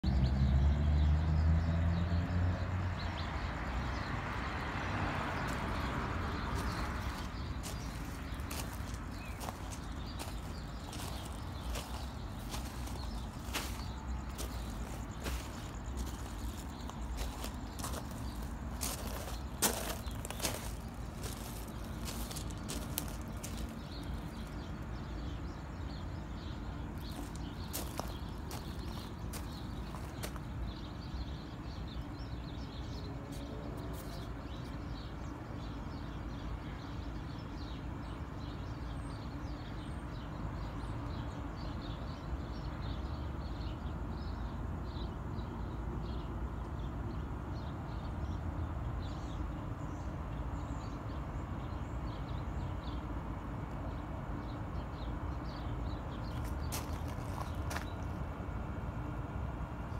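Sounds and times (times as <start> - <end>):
vehicle engine hum: 0.0 - 34.9
passing tyres and traffic: 0.0 - 59.9
footsteps crunching on gravel: 6.5 - 25.1, 27.0 - 30.6, 56.2 - 58.2.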